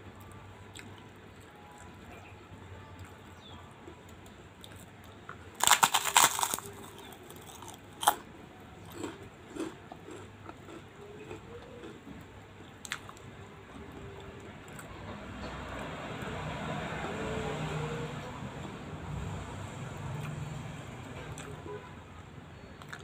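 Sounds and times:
cracker crunching: 4.6 - 13.3.

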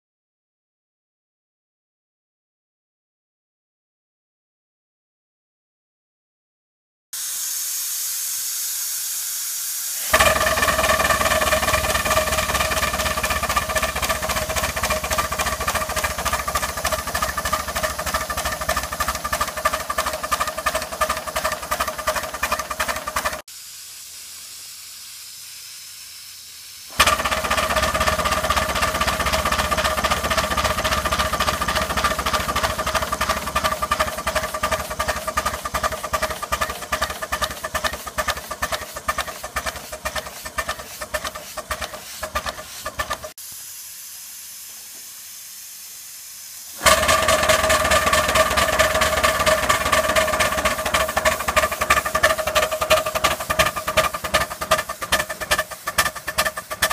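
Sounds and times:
faint hiss: 7.2 - 18.6, 23.4 - 27.1, 38.0 - 46.9
model steam engine exhaust beats: 7.2 - 56.9.

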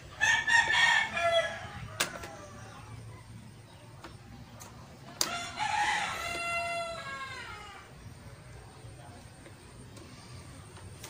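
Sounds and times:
rooster crowing: 0.1 - 2.7, 5.2 - 7.9.

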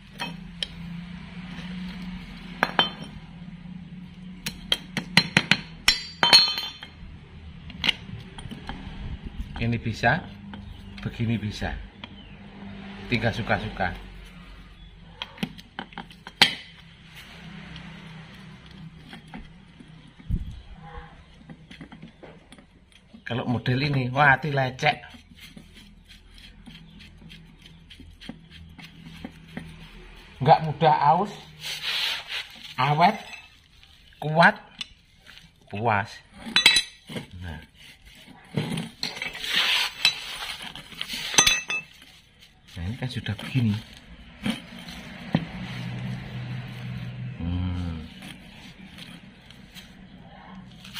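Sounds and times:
metal parts clinking and scraping: 32.6 - 34.2, 36.4 - 37.3, 38.1 - 45.3
metal parts clinking: 36.5 - 37.3, 38.6 - 42.2.

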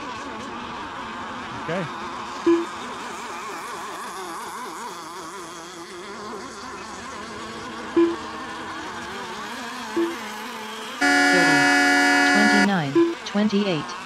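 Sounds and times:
small boat engines buzzing: 0.0 - 14.0
short loud beeps: 2.5 - 2.7, 8.0 - 8.2, 10.0 - 10.2, 11.0 - 13.2.

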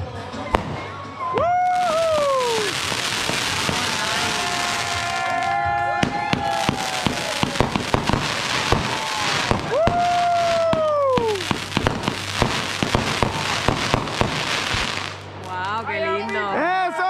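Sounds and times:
firework bangs and crackles: 0.0 - 15.9
whistling firework: 0.5 - 15.2.

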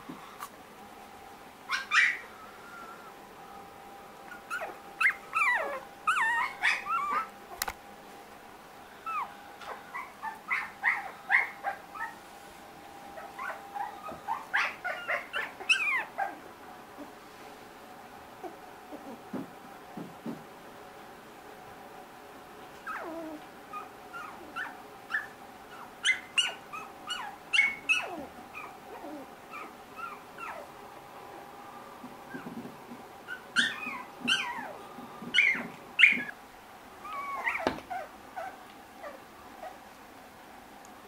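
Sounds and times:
puppies whimpering and yipping: 1.7 - 3.0, 4.2 - 7.4, 9.0 - 12.2, 13.2 - 16.5, 22.8 - 30.7, 33.2 - 36.4, 37.0 - 39.8.

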